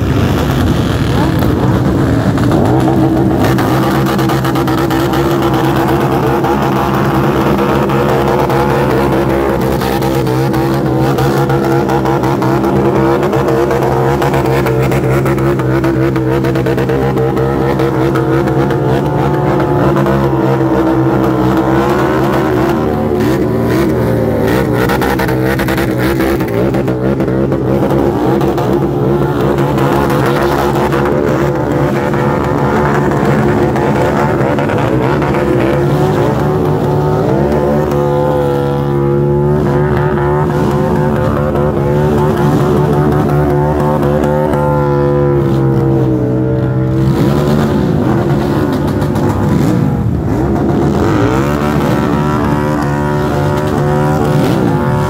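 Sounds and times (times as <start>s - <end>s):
motorcycle engines revving: 0.0s - 55.0s.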